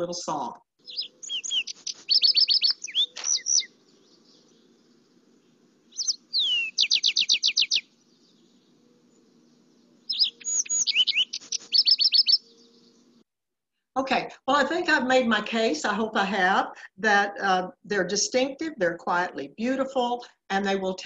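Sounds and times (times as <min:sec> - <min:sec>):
sparrow song with trills: 0:00.8 - 0:13.2.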